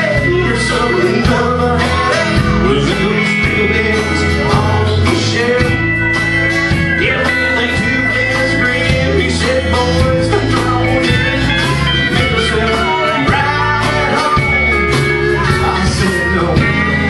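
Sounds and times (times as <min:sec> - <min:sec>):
acoustic guitar: 0:00.0 - 0:17.0
drums: 0:00.0 - 0:17.0
electric bass: 0:00.0 - 0:17.0
pedal steel guitar: 0:00.0 - 0:17.0.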